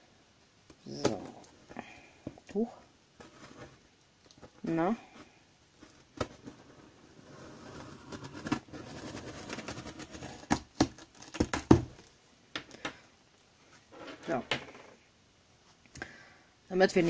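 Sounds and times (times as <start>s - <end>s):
cardboard knocks and thuds: 10.3s - 12.0s.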